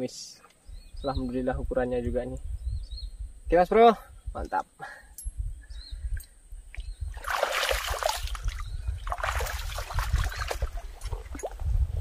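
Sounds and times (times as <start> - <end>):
water splashing: 7.1 - 11.6.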